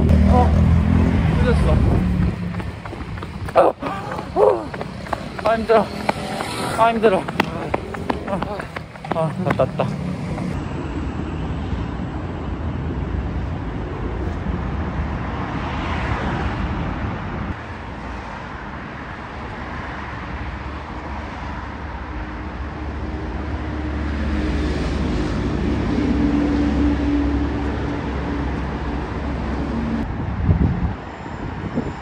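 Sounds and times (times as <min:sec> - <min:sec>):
heavy vehicle engine: 0:00.0 - 0:13.8
road traffic passing: 0:00.0 - 0:32.0.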